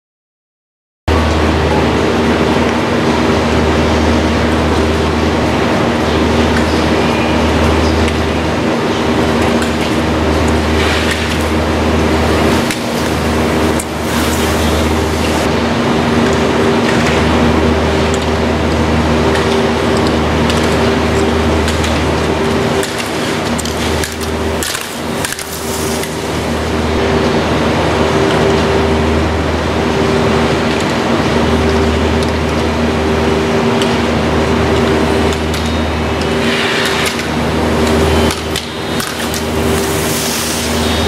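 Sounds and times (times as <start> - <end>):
machinery hum: 1.1 - 41.0
skis scraping on snow: 10.7 - 15.5, 24.7 - 27.0, 39.2 - 41.0
loud even hiss: 39.5 - 41.0.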